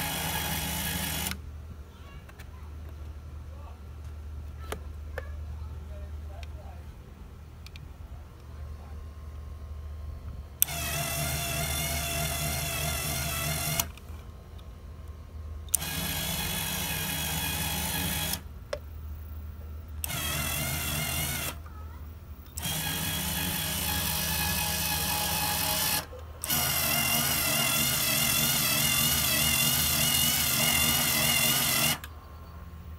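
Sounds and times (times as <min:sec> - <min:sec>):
cordless screwdriver motor whirring: 0:00.0 - 0:01.4, 0:10.6 - 0:14.1, 0:15.7 - 0:18.5, 0:20.0 - 0:21.6, 0:22.5 - 0:32.1.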